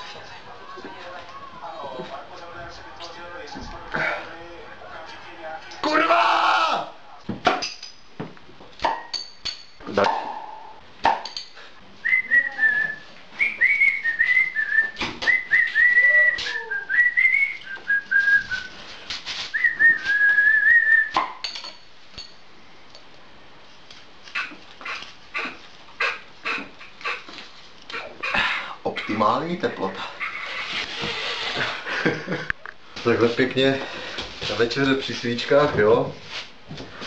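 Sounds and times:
person whistling a tune: 0:12.0 - 0:18.7, 0:19.6 - 0:21.2.

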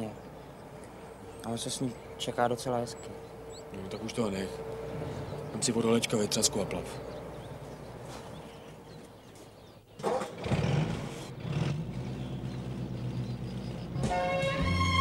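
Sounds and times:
car engine starting and running: 0:09.9 - 0:14.8.

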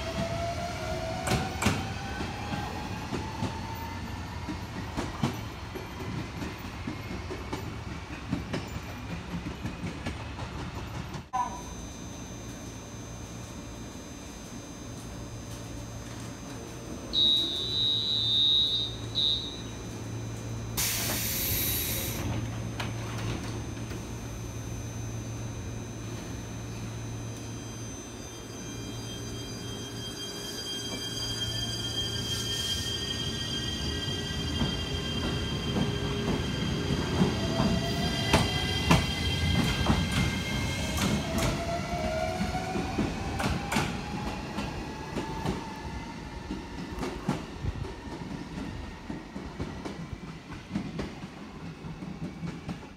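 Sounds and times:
train low hum: 0:00.0 - 0:52.9
train door warning buzzer: 0:11.4 - 0:29.7
air hiss of door mechanism: 0:20.8 - 0:22.2.

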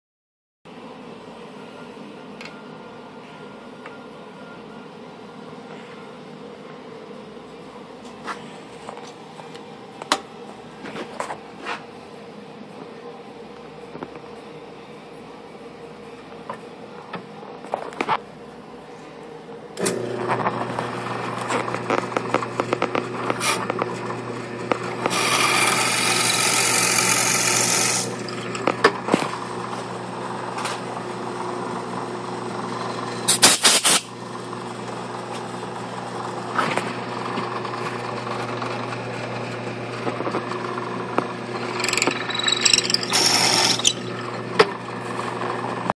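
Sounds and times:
drill press humming: 0:19.8 - 0:30.2, 0:41.3 - 0:44.9
drill bit cutting hiss: 0:25.1 - 0:28.2, 0:41.6 - 0:44.2.

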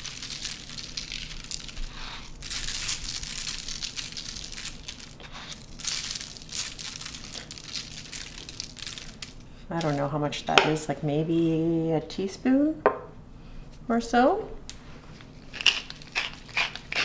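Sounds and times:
grains crackling on paper: 0:00.0 - 0:10.1.

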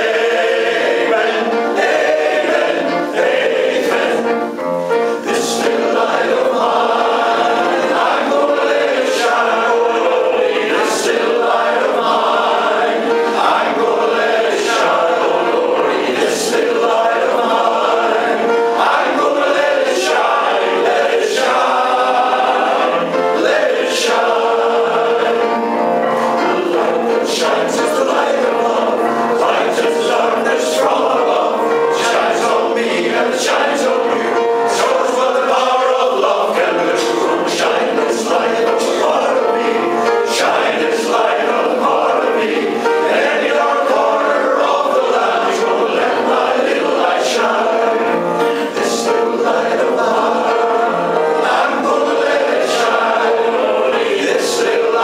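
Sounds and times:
male choir singing in harmony: 0:00.0 - 0:55.0.

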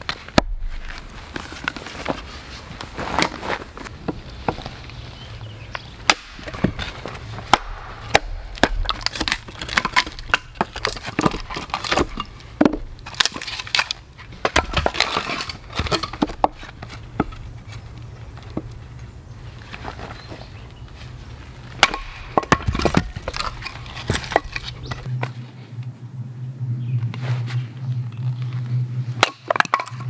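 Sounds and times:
hatchet splitting firewood: 0:00.0 - 0:02.3, 0:05.6 - 0:19.0, 0:21.4 - 0:25.1, 0:29.2 - 0:30.0
wood splintering: 0:06.0 - 0:17.8, 0:21.7 - 0:25.1.

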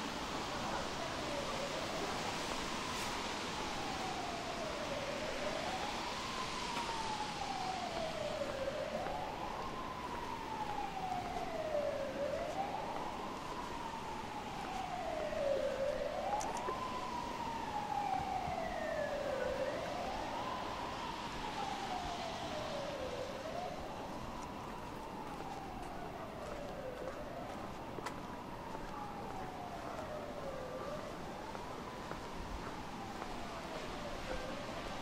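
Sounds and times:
rain hiss: 0:00.0 - 0:25.3
emergency siren wailing: 0:00.0 - 0:35.0.

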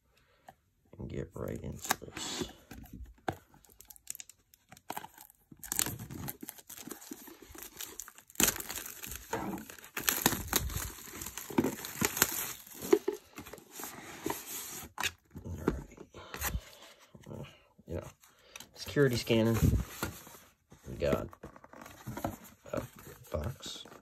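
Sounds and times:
packaging crinkling and tearing: 0:03.5 - 0:13.8.

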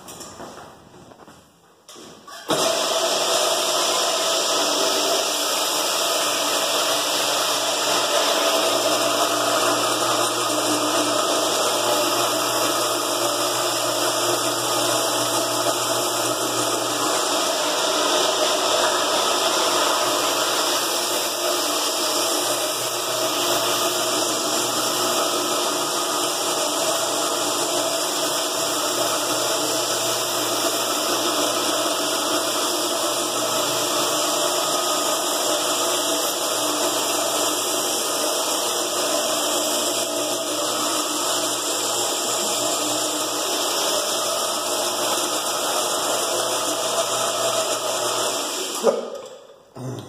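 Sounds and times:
electric floor buffer droning: 0:02.4 - 0:50.0.

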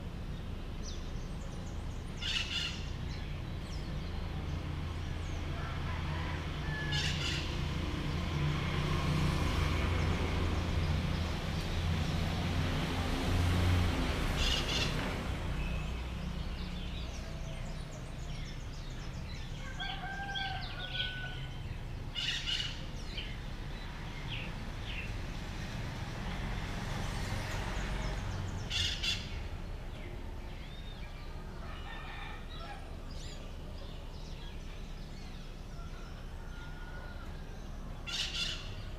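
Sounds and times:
roosters crowing: 0:05.4 - 0:07.6, 0:19.4 - 0:22.5, 0:31.4 - 0:33.3, 0:35.4 - 0:38.9.

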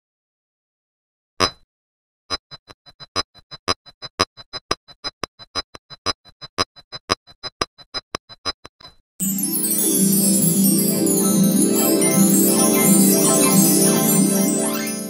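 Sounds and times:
keyboard music: 0:09.2 - 0:15.0.

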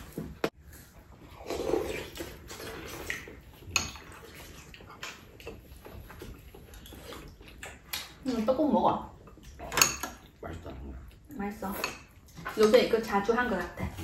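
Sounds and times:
utensils clinking on ceramic bowls: 0:09.6 - 0:10.4.

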